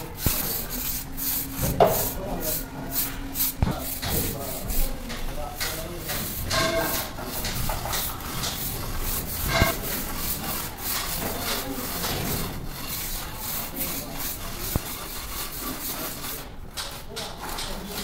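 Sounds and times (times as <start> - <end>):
trowel scraping mortar: 0.0 - 18.0.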